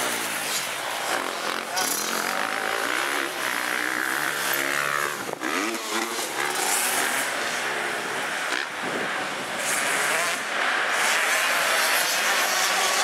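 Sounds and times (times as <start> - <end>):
motocross bike engine revving: 0.0 - 13.0.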